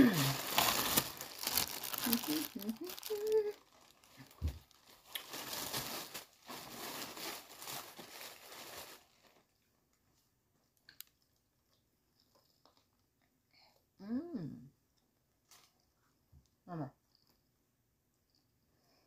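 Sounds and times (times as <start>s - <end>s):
food packaging crinkling: 0.0s - 9.6s.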